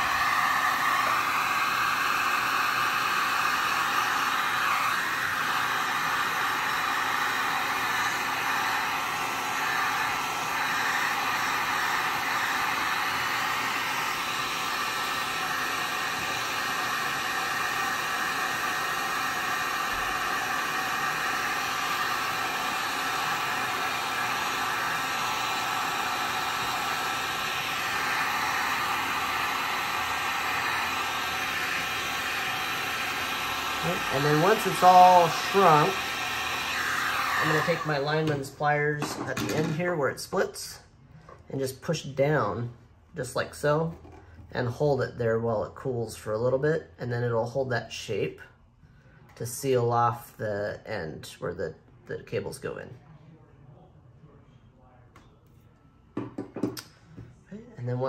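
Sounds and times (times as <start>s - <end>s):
heat gun blowing hot air: 0.0s - 40.7s.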